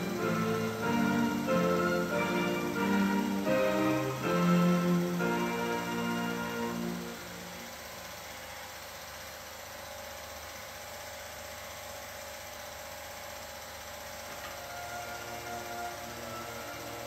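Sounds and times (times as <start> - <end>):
film projector whirring: 0.0 - 17.0.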